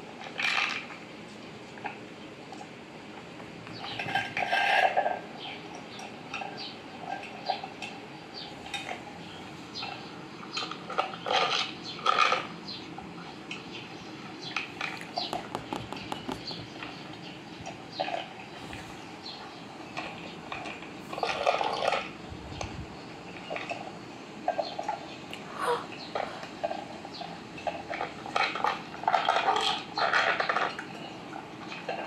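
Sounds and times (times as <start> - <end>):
cats crunching dry food: 8.6 - 12.7, 14.5 - 24.6, 26.1 - 32.0
food clinking against bowl: 14.8 - 17.0.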